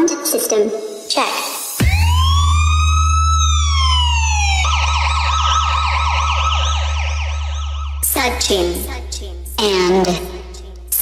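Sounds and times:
police siren wailing and yelping: 0:01.8 - 0:08.9.

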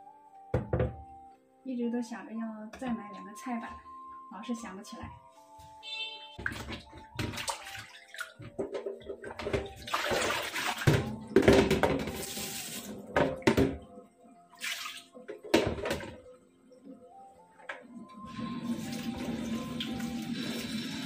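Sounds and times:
tap water splashing into sink: 0:06.4 - 0:12.4, 0:14.6 - 0:16.2.

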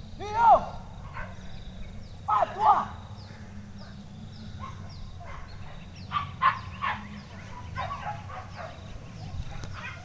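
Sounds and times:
dogs yelping and baying: 0:01.0 - 0:01.6, 0:04.6 - 0:10.0.

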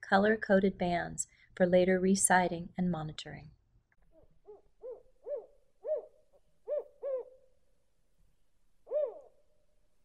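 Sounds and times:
owl hooting: 0:04.4 - 0:07.5, 0:08.8 - 0:09.4.

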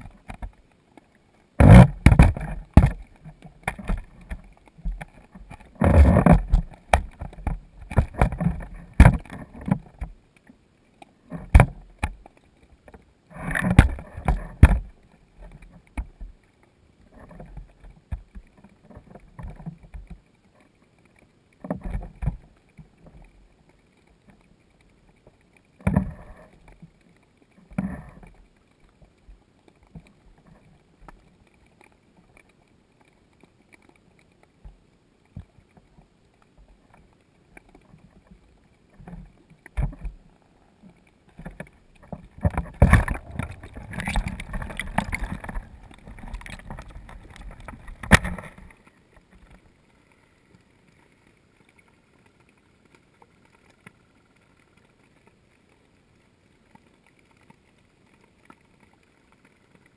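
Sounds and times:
underwater knocks and handling: 0:00.0 - 0:55.4
water sloshing and thumping: 0:01.6 - 0:10.2, 0:13.4 - 0:16.1, 0:41.3 - 0:48.8.

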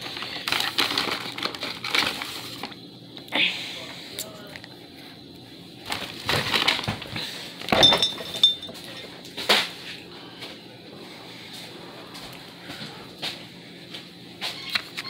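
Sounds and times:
hard objects clinking and knocking: 0:07.6 - 0:09.1.

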